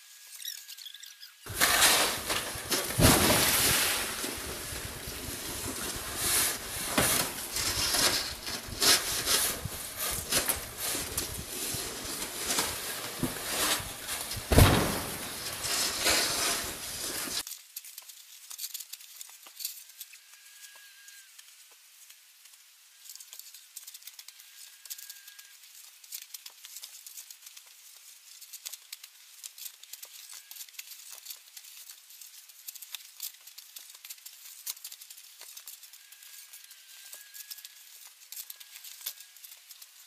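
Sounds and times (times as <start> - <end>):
snow shovels scraping: 1.5 - 17.4
snow sliding off roof: 1.5 - 17.4
loud thump: 13.1 - 17.4.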